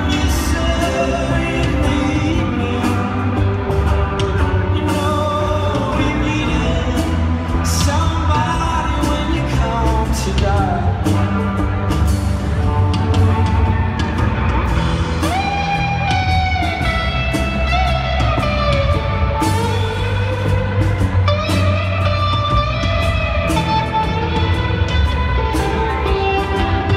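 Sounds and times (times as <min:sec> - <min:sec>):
live band playing: 0:00.0 - 0:26.9.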